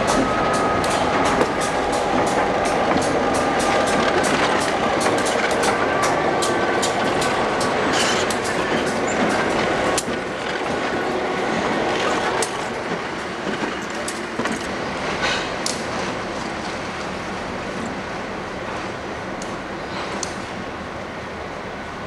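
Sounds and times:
wheels clicking over rail joints: 0.0s - 11.0s
diesel locomotive engines: 0.0s - 22.0s.

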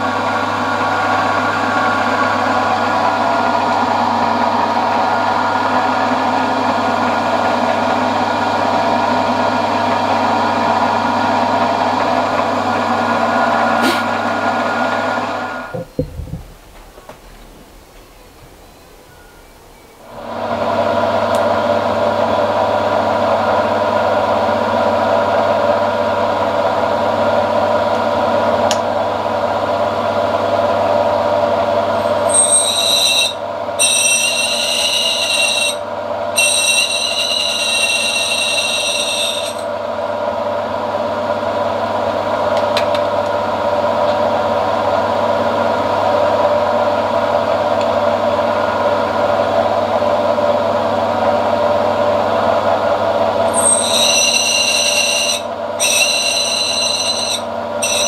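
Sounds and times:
motor and gear hum: 9.6s - 25.6s
drill bit squealing on steel: 32.0s - 35.8s, 36.4s - 39.7s, 53.5s - 58.0s.

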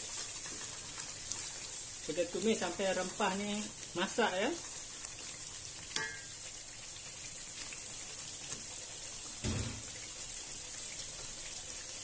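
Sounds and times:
spice paste sizzling in oil: 0.0s - 12.0s
dull thump: 9.4s - 9.9s.

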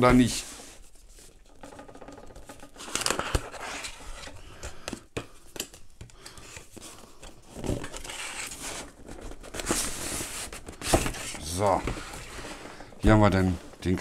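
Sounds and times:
cardboard packaging handled: 0.6s - 4.4s, 6.4s - 14.0s
paper scraping and rubbing: 2.7s - 4.4s, 7.8s - 14.0s.

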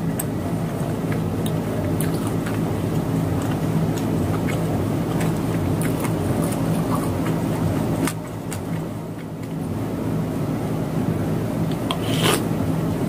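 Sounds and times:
low background hum: 0.0s - 13.0s
slurp of noodles: 11.9s - 12.5s.

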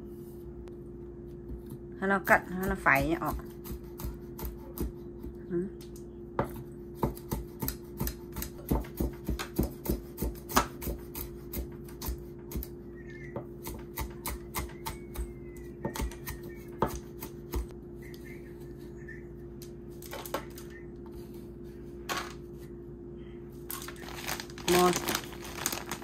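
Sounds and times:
knife chopping on cutting board: 2.6s - 5.4s, 6.4s - 12.7s, 13.6s - 17.7s.

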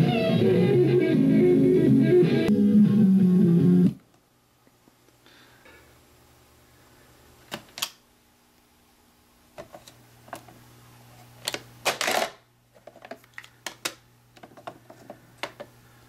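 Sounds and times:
cassette ejecting clatter: 11.4s - 12.4s.

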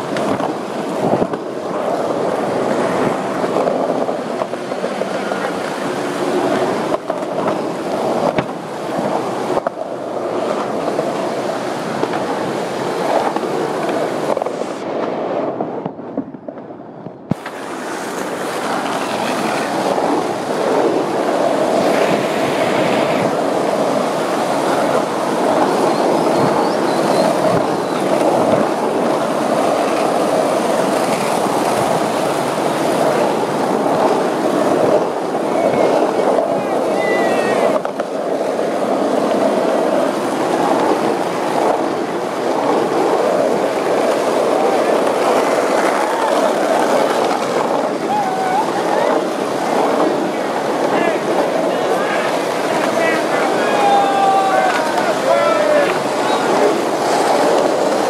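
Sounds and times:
skateboard clacks over cracks: 0.0s - 14.5s, 16.1s - 22.4s
skateboard wheels rolling: 0.0s - 58.0s.

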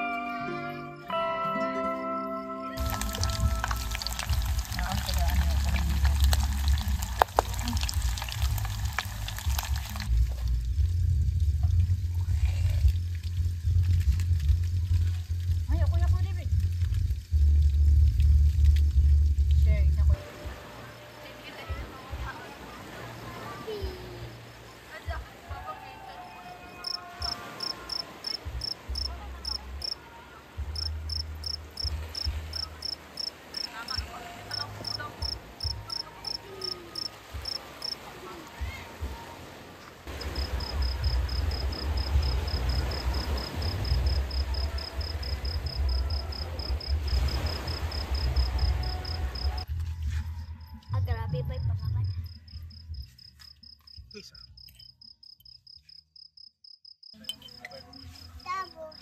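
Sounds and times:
loud low rumbling: 2.8s - 20.6s
crickets chirping: 20.2s - 59.0s.

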